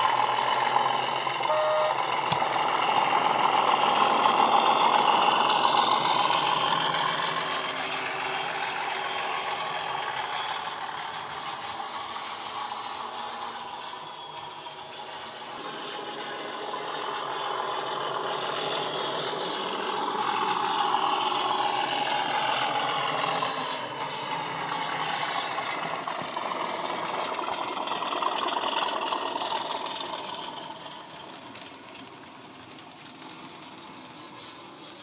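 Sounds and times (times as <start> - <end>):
diesel engine sound from small speaker: 0.0 - 31.7
model wheels rattling on track: 2.2 - 35.0.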